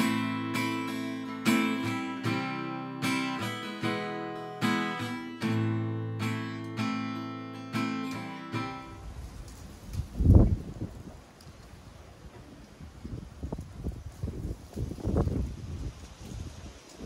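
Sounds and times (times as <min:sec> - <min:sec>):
acoustic guitar strumming chords: 0:00.0 - 0:09.1.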